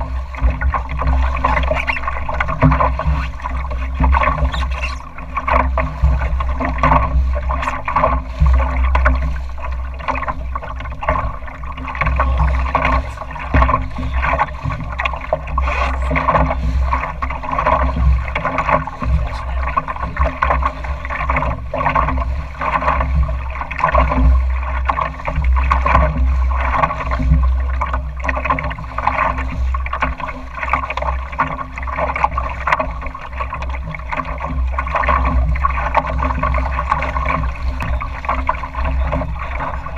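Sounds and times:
water splashing against hull: 0.0s - 39.9s
wind rumble on microphone: 0.0s - 39.9s.

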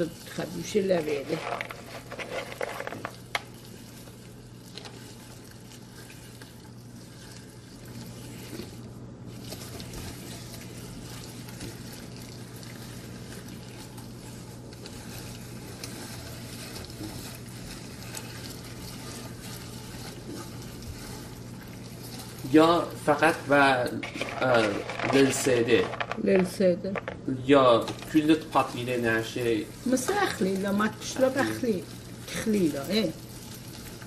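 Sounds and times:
mincer crunching walnuts: 22.3s - 27.2s.

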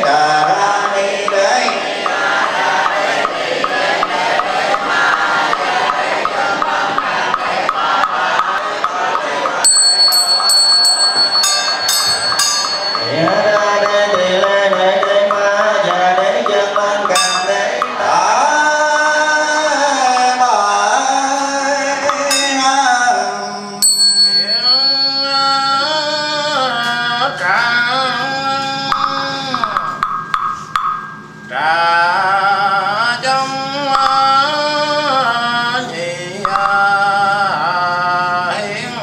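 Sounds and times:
wooden knocking beat: 0.0s - 18.0s, 28.9s - 31.2s, 36.4s - 36.9s
small ritual bell ringing: 9.6s - 13.9s, 17.1s - 17.8s, 22.2s - 23.1s, 23.7s - 26.8s.

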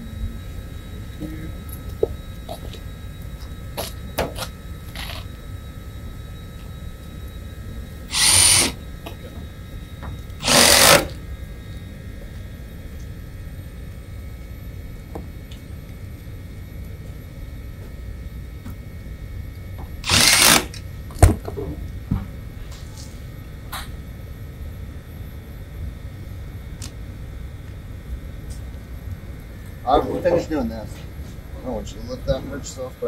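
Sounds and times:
power drill bursts: 8.1s - 8.8s, 10.4s - 11.2s, 20.0s - 20.8s.

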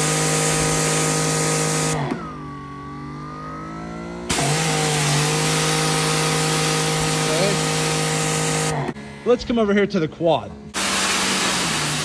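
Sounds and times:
pressure washer motor whine: 0.0s - 9.6s, 10.7s - 12.0s
pressure washer spray hiss: 4.3s - 8.7s, 10.8s - 12.0s.

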